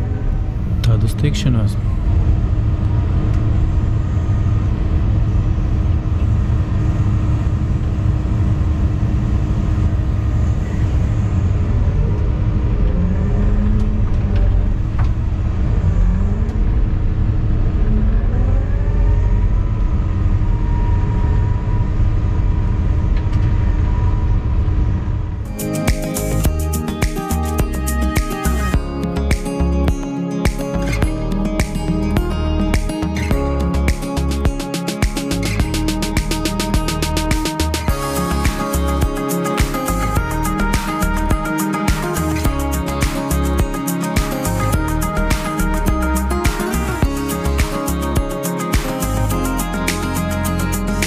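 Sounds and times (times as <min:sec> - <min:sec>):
faint whining tones: 0:00.0 - 0:25.5
diesel engine rumbling: 0:00.0 - 0:30.0, 0:30.7 - 0:34.6, 0:35.3 - 0:48.3, 0:49.0 - 0:51.0.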